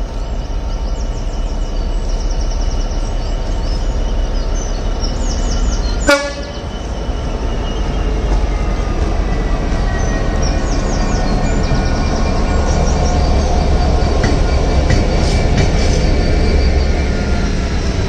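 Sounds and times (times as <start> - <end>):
birds chirping: 0.0 - 17.1
diesel locomotive engine rumble: 0.0 - 18.0
train horn toot: 6.0 - 6.7.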